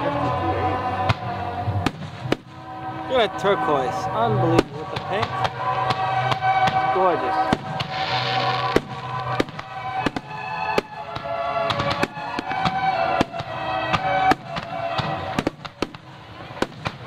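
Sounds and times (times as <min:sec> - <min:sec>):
music with steady beat: 0:04.0 - 0:17.0
firework shells bursting: 0:04.6 - 0:17.0.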